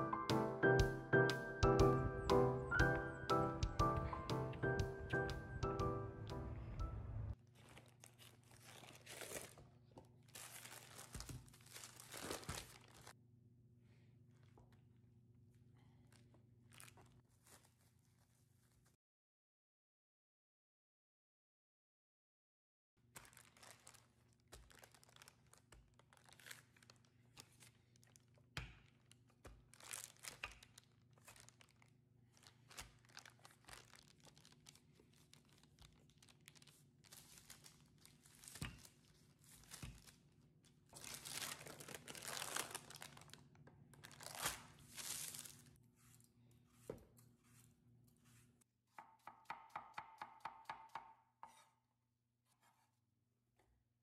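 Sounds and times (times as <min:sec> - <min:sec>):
paper and plastic wrap crinkling: 0:07.4 - 0:13.2, 0:15.9 - 0:18.9, 0:23.0 - 0:46.2
knife tapping on cutting board: 0:49.0 - 0:51.6.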